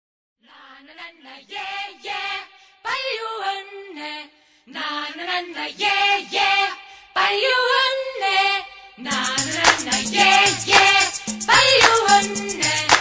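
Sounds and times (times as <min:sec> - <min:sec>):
high voice singing: 0:06.6 - 0:13.0.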